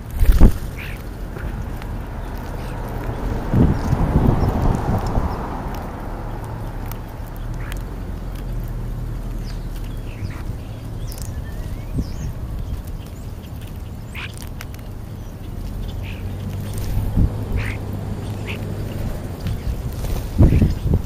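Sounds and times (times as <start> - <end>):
starlings squawking: 0.0 - 21.0
steady low rumble: 0.0 - 21.0.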